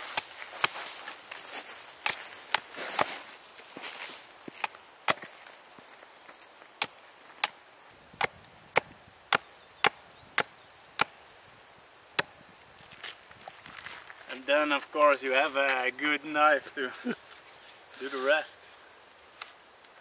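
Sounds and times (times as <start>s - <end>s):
axe chopping branch on wood block: 2.0s - 3.2s, 4.5s - 5.4s, 6.8s - 11.2s.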